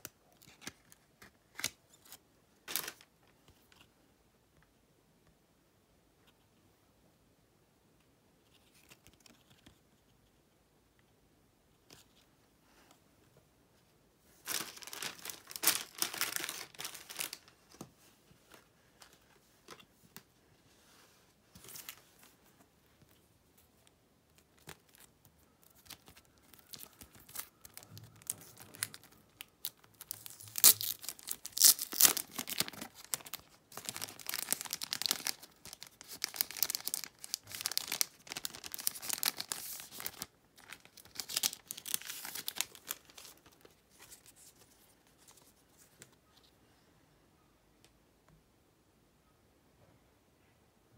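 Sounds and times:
plastic packaging crinkling: 14.4s - 17.8s, 23.8s - 45.6s.

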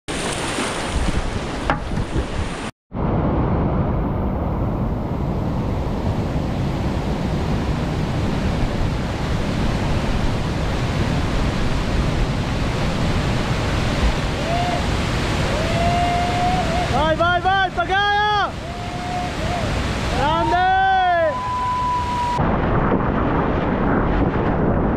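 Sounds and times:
whitewater rapids rushing: 9.1s - 22.4s.

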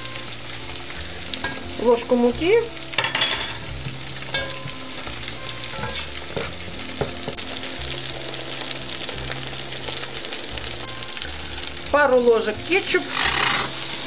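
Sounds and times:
food sizzling in hot oil: 0.0s - 14.0s
spatulas stirring: 4.3s - 7.4s.

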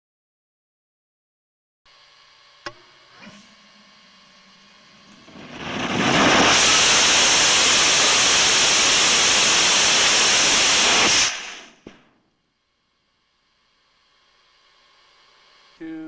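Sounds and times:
rocket motor rushing hiss: 1.9s - 12.1s.

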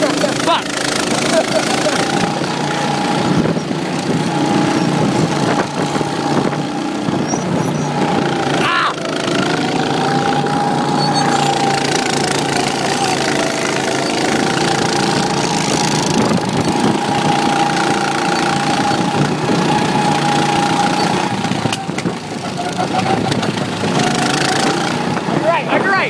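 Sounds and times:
go-kart engine running: 0.0s - 26.0s.

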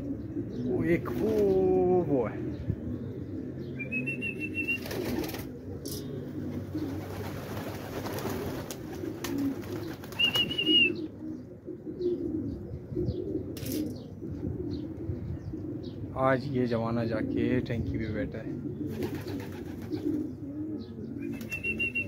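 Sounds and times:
high warbling bird calls: 0.0s - 16.0s, 18.6s - 22.0s
pigeons cooing: 0.0s - 22.0s
wing flaps: 4.6s - 6.0s, 6.6s - 10.8s.

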